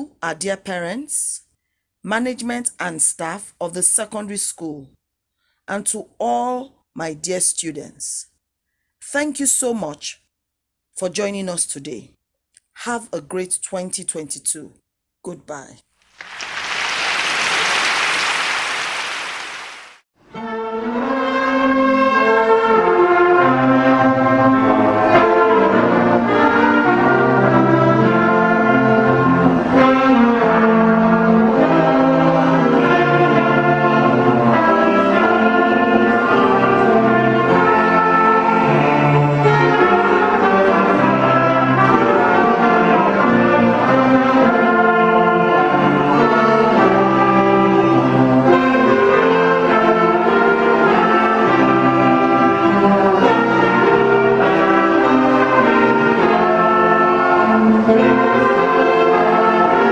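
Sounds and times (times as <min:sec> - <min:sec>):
student orchestra playing: 0:21.2 - 0:59.9.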